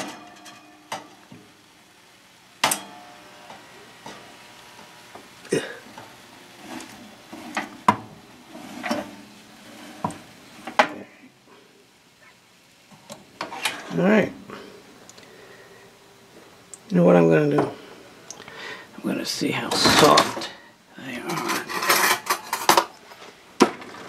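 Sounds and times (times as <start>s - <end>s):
oven rack clanking: 0.0s - 1.2s, 2.6s - 4.3s.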